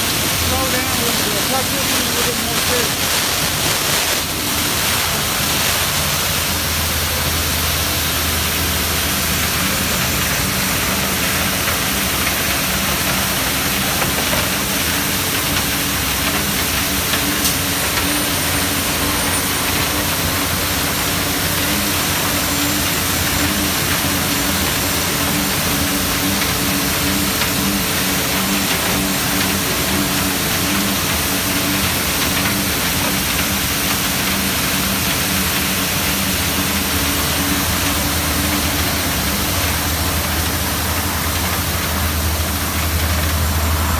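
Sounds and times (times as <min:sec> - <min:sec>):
street sweeper engine humming: 0:00.0 - 0:43.9
broom brushing gravel: 0:00.1 - 0:06.7.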